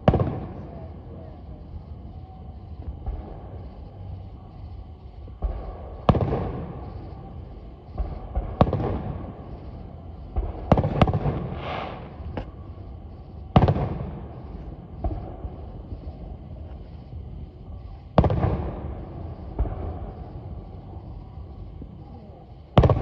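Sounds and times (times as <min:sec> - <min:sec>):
firework bangs echoing: 0:07.9 - 0:09.4, 0:10.3 - 0:12.4, 0:13.6 - 0:14.4, 0:18.2 - 0:20.3, 0:22.8 - 0:23.0.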